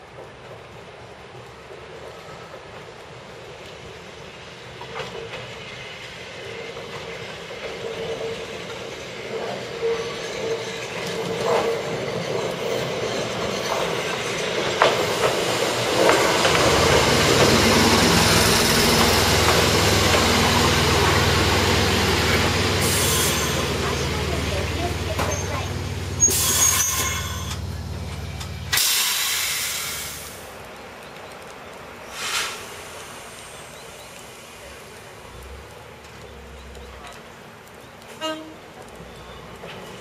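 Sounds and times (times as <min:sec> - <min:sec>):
electric train arriving: 0:00.2 - 0:30.9
wheels clicking over rail joints: 0:04.7 - 0:29.0, 0:34.0 - 0:40.0.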